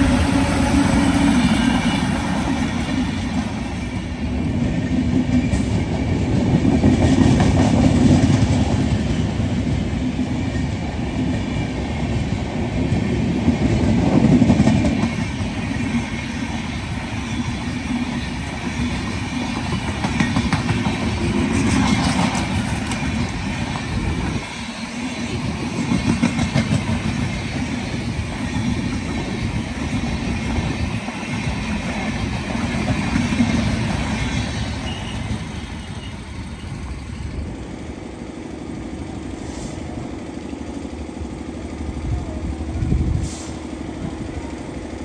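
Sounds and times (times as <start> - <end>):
train wheels rumbling on rails: 0.0 - 45.0
rushing air: 42.6 - 43.9.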